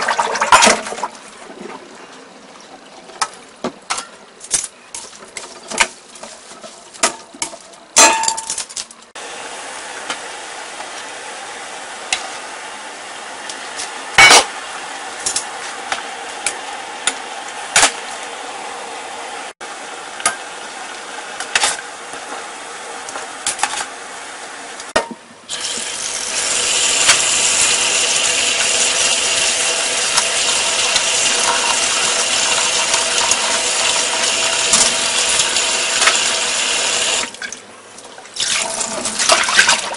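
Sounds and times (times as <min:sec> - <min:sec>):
pot boiling: 0:00.0 - 0:01.8, 0:09.2 - 0:37.4
tap running into strainer: 0:26.6 - 0:36.4.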